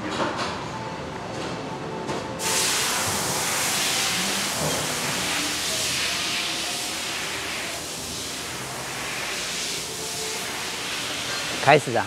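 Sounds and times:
loud hiss of rushing air: 2.4 - 12.0.

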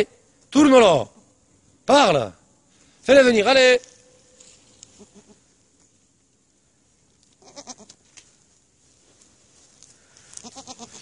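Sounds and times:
goats bleating: 7.4 - 7.9, 10.4 - 11.0.

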